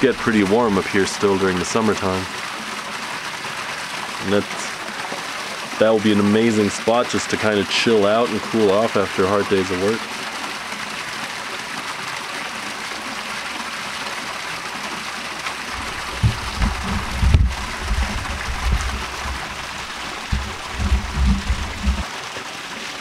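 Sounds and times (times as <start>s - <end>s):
creek running over rocks: 0.0s - 23.0s
low rumbles on microphone: 15.7s - 22.0s.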